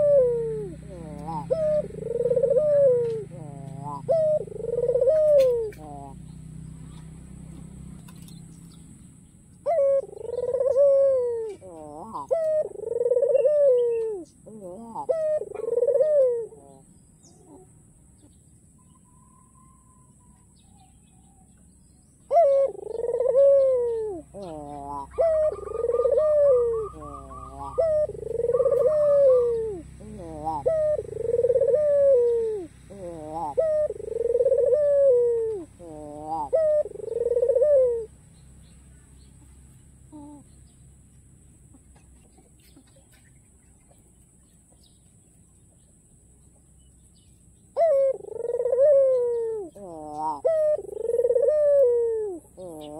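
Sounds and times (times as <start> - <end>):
dove cooing: 0.0 - 8.6, 9.6 - 17.8, 22.2 - 38.2, 40.0 - 40.6, 47.7 - 52.9.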